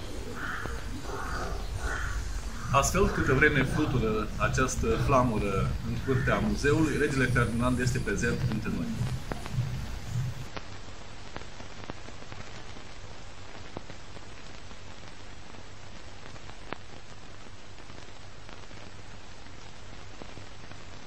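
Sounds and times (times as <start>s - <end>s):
low hum: 0.0s - 10.6s
steady static hiss: 0.0s - 21.0s.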